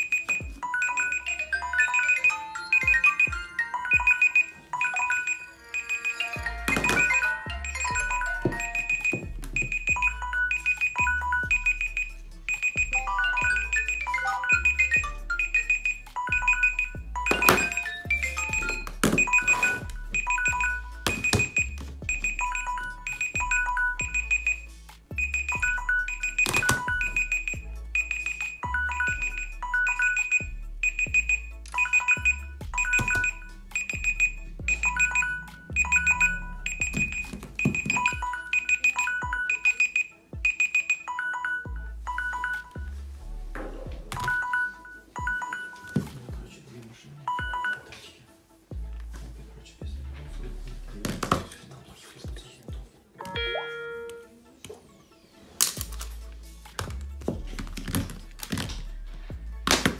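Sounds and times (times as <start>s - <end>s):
electronic music with bass beat: 0.0s - 0.6s, 6.4s - 38.6s, 41.7s - 44.2s, 55.8s - 59.9s
high beeping notes: 0.0s - 42.9s, 53.2s - 54.4s.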